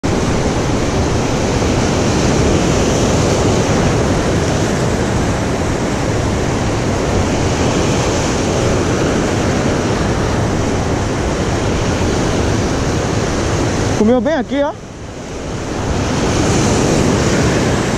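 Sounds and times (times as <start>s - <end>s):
sea surf breaking over rocks: 0.0s - 17.9s.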